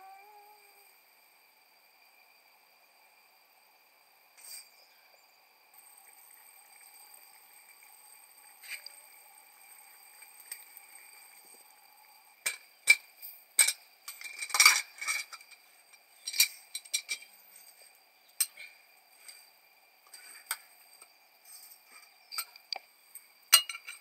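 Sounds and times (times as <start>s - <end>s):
kitchen utensils and dishes clinking: 12.4s - 15.6s, 16.2s - 17.4s, 23.5s - 24.0s.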